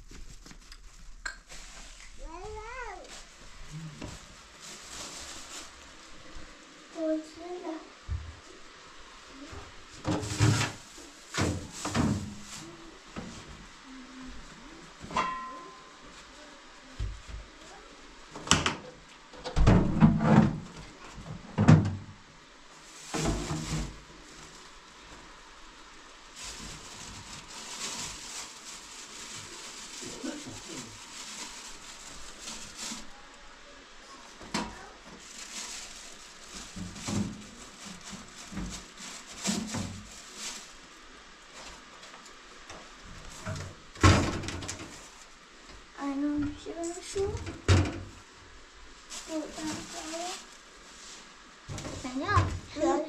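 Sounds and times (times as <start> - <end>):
scraping rustle: 0.0 - 7.8, 9.3 - 16.5, 22.7 - 25.4, 26.0 - 33.4, 34.0 - 45.4, 48.9 - 53.0
kitchen items knocking and rustling: 9.9 - 13.6, 15.0 - 15.8, 18.4 - 22.2, 23.0 - 24.6, 34.4 - 40.5, 43.2 - 45.1, 47.2 - 48.2, 51.7 - 52.8
kitchen things clattering: 10.0 - 12.4, 15.0 - 15.9.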